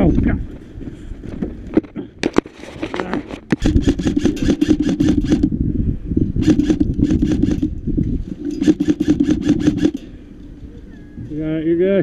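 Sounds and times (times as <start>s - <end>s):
buzzing gearbox hum: 3.4s - 5.6s, 6.4s - 10.2s
airsoft rifle bursts: 3.6s - 5.5s, 6.4s - 7.7s, 8.6s - 10.0s.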